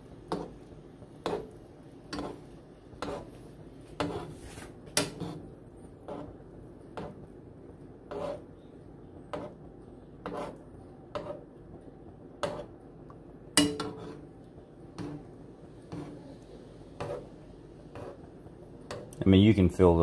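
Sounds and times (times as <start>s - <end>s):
faint water simmering: 0.0s - 20.0s
metal spoon clinking on skillet: 13.6s - 14.2s.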